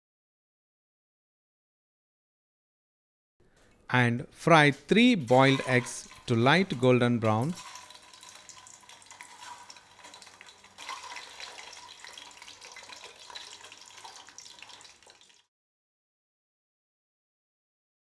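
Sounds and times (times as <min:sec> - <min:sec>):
eggs sizzling in oil: 0:05.2 - 0:15.5.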